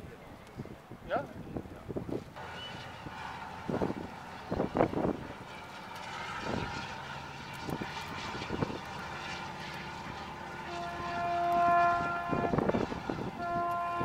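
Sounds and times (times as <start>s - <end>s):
rumbling harbour background: 0.0s - 14.0s
ship's horn blast: 8.2s - 14.0s.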